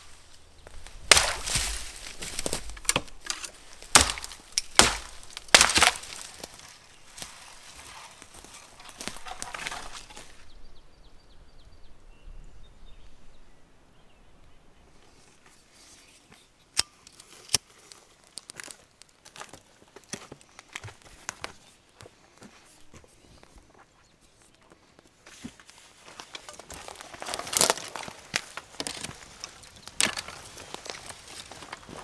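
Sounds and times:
kindling crackling: 0:00.0 - 0:10.4, 0:16.8 - 0:21.4
dry twigs rustling and snapping: 0:00.0 - 0:10.5, 0:16.3 - 0:22.1, 0:24.4 - 0:32.0.

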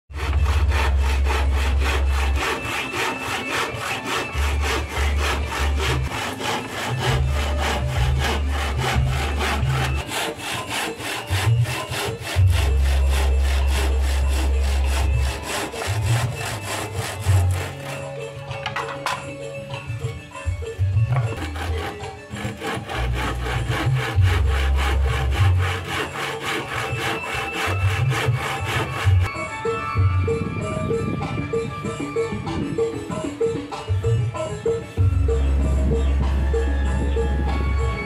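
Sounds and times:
handsaw cutting plywood: 0:00.1 - 0:18.9, 0:21.0 - 0:29.3
deep bass line: 0:35.0 - 0:38.0.

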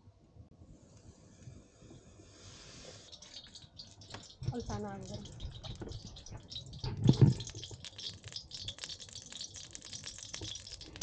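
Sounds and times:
wood fire crackling: 0:02.5 - 0:11.0.

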